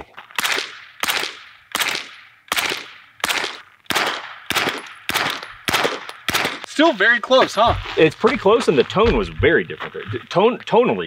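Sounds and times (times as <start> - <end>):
suppressed gunshots: 0.4 - 6.7.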